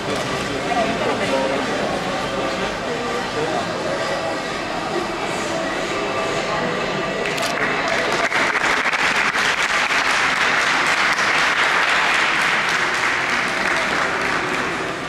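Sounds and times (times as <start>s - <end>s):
audience applauding: 7.2s - 15.0s.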